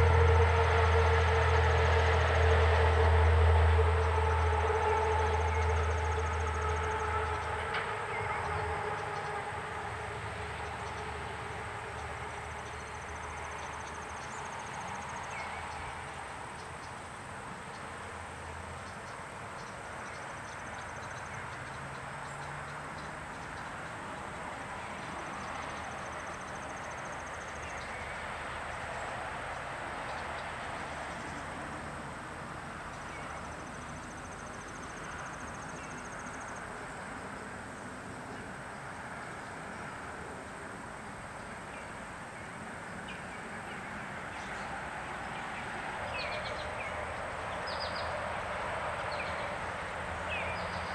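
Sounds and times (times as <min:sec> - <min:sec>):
distant traffic hiss: 0:00.0 - 0:50.9
passing vehicle rumble: 0:00.0 - 0:50.9.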